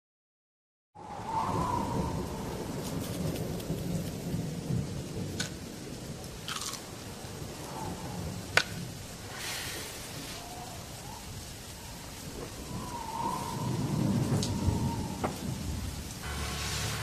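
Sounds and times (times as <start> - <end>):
low rumble of thunder: 1.0 - 17.0
rain falling: 1.0 - 17.0
crackling ticks: 2.7 - 7.0, 8.5 - 9.0, 10.4 - 16.2.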